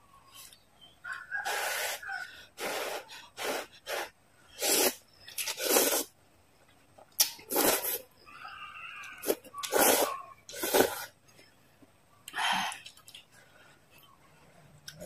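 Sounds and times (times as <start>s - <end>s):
noodles being slurped: 2.6s - 6.2s, 7.2s - 8.1s, 9.2s - 11.1s.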